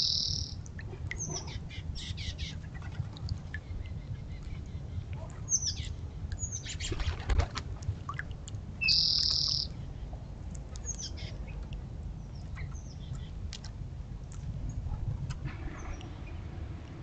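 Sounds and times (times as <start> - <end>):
birds chirping: 0.0 - 2.6, 8.8 - 10.1
low wind rumble: 0.0 - 17.0.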